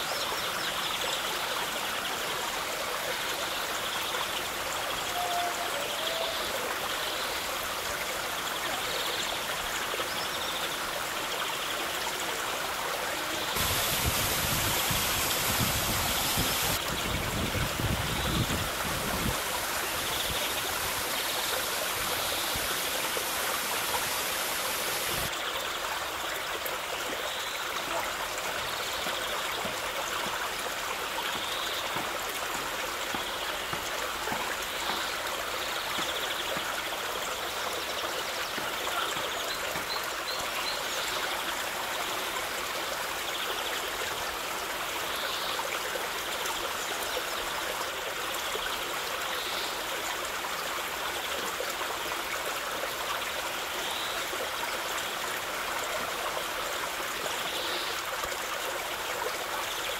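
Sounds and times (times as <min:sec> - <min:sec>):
waterfall splashing onto rock: 0:13.6 - 0:25.3.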